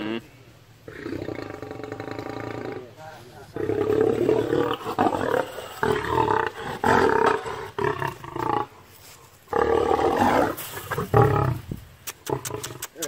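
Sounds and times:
lion roaring: 0:00.9 - 0:03.0, 0:03.6 - 0:08.8, 0:09.5 - 0:11.6.

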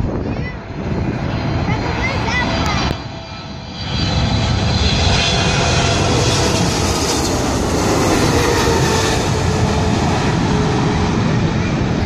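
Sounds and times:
faint jet whine: 0:00.0 - 0:12.0
jet engine rushing overhead: 0:00.0 - 0:12.0.

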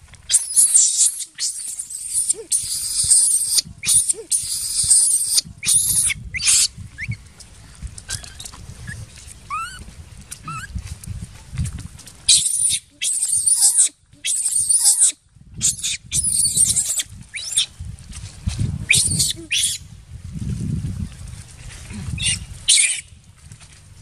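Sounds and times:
baby monkey screaming: 0:00.3 - 0:06.7, 0:09.5 - 0:09.8, 0:10.4 - 0:10.7, 0:12.3 - 0:17.7, 0:18.9 - 0:19.8, 0:22.2 - 0:23.0
monkey squeals: 0:00.3 - 0:07.2, 0:08.1 - 0:09.8, 0:10.4 - 0:10.7, 0:12.3 - 0:17.7, 0:18.9 - 0:19.8, 0:22.2 - 0:23.0.

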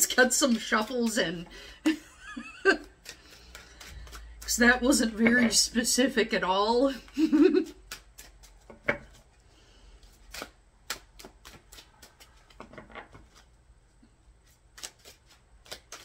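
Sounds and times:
cards shuffling: 0:02.8 - 0:05.3, 0:07.5 - 0:09.3, 0:10.0 - 0:13.5, 0:14.4 - 0:16.0.

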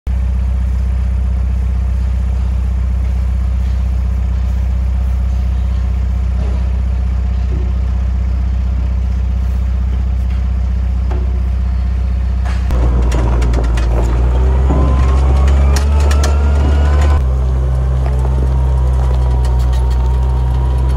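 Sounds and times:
small engine idling: 0:00.1 - 0:20.9
rattling clicks: 0:12.4 - 0:17.3.

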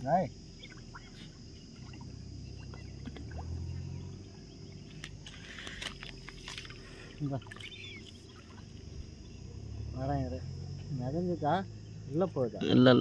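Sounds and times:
lake water sloshing and splashing: 0:00.6 - 0:09.3.

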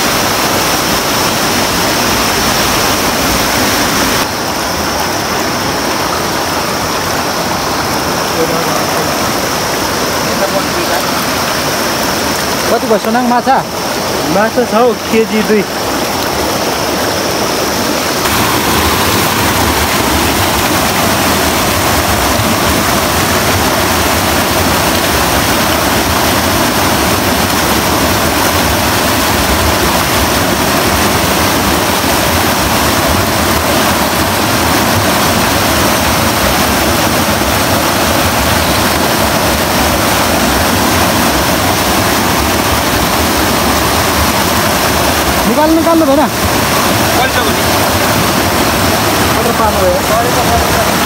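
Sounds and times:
water rushing over rocks: 0:00.0 - 0:51.0.

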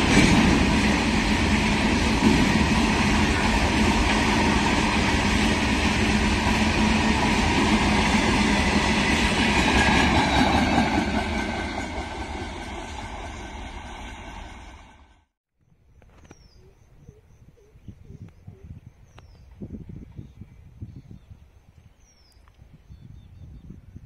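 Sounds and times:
freight train rumbling past: 0:00.0 - 0:15.3.

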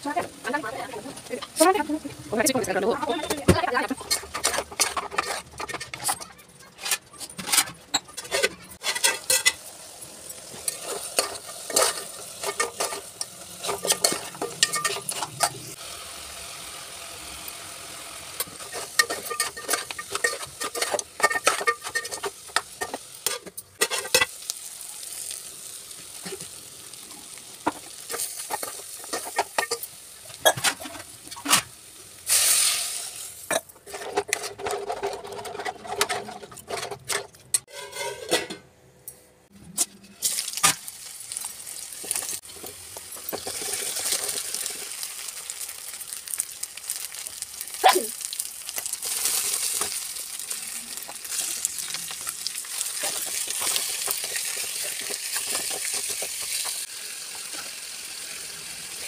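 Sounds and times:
spoon clinking and scraping a pot: 0:03.8 - 0:09.7, 0:10.4 - 0:15.8, 0:18.4 - 0:24.4, 0:27.6 - 0:31.7, 0:32.3 - 0:38.6, 0:51.0 - 0:56.9.

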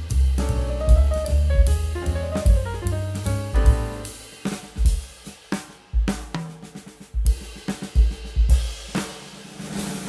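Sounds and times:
pitched backing music: 0:00.0 - 0:10.0
snare drum: 0:00.0 - 0:10.0
kick drum: 0:00.4 - 0:05.1.

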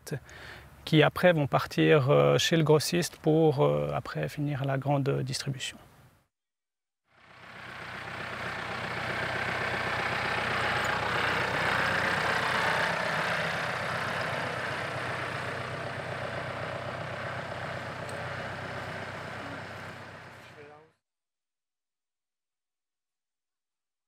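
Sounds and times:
vehicle engine passing by: 0:07.2 - 0:20.7.

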